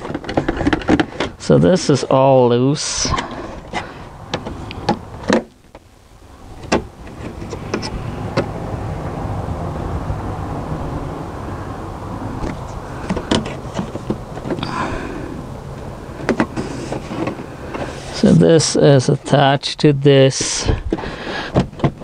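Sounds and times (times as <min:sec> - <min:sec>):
plastic trim clicking and knocking: 0:00.0 - 0:01.4
low rushing background: 0:03.0 - 0:18.3.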